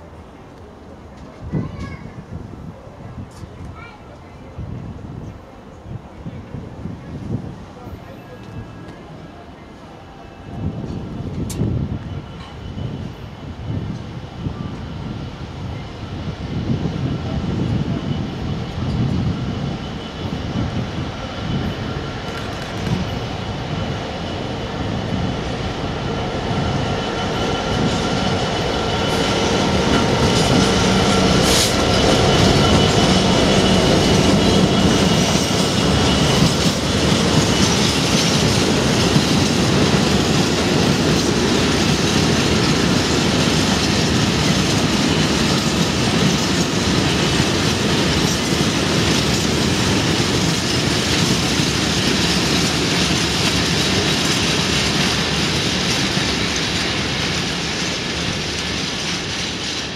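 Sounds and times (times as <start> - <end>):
train wheels on rails: 0.0 - 59.9
diesel locomotive engine running: 15.0 - 59.9.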